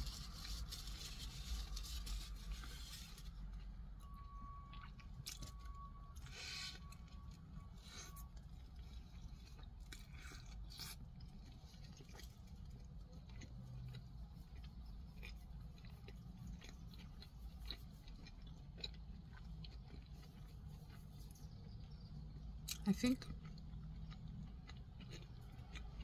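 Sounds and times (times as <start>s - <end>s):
low steady hum: 0.0s - 26.0s
mouth chewing: 0.2s - 26.0s.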